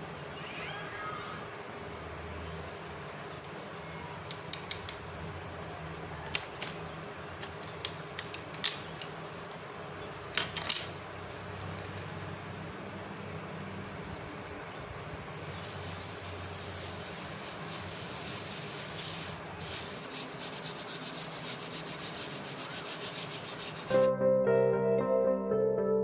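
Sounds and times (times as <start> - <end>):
pencil sharpening and scraping: 15.4 - 23.9.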